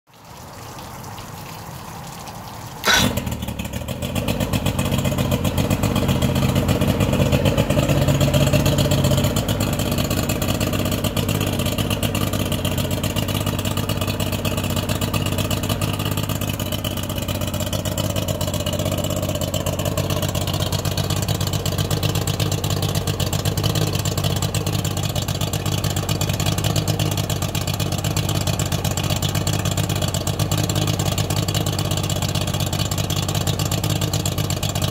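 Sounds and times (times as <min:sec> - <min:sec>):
outboard engine idling: 0:00.3 - 0:34.9
hiss: 0:02.8 - 0:03.2
outboard engine starting with bang: 0:02.8 - 0:10.1.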